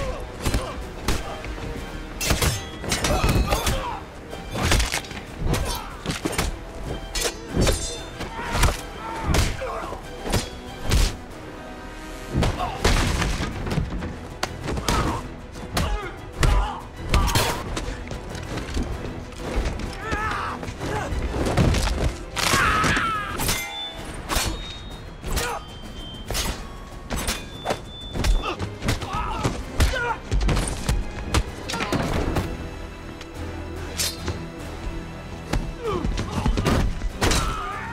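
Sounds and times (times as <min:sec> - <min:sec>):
dramatic score music: 0:00.0 - 0:37.9
men grunting and shouting: 0:14.7 - 0:17.7.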